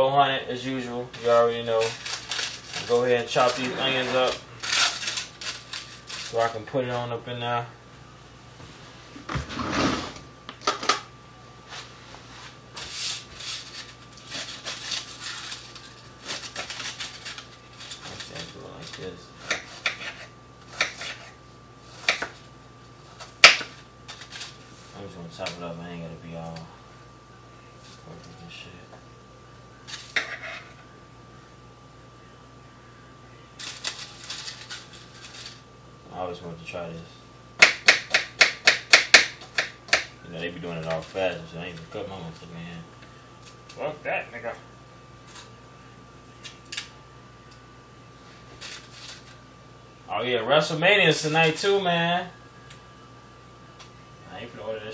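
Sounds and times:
faint steady hum: 0:00.0 - 0:54.9
aluminum foil crinkling: 0:01.5 - 0:06.6, 0:12.8 - 0:19.2, 0:23.7 - 0:24.7, 0:33.6 - 0:35.7, 0:48.4 - 0:49.4
knife chopping on cutting board: 0:19.4 - 0:21.3, 0:22.0 - 0:22.4, 0:37.6 - 0:40.1.

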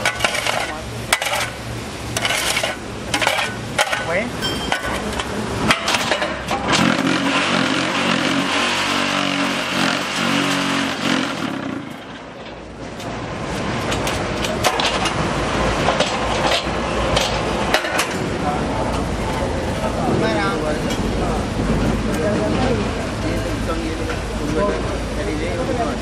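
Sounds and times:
vibration motors running loudly: 0:06.5 - 0:12.2.

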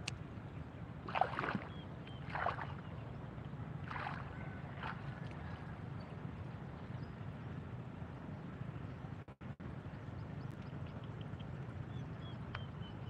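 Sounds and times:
low rumbling background noise: 0:00.0 - 0:13.0.

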